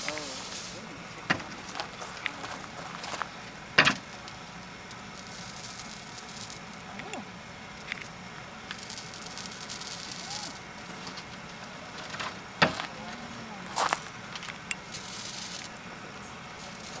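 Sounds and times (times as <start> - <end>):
horse hair sizzling on hot pot: 3.9 - 12.0, 14.8 - 15.8, 16.5 - 17.0.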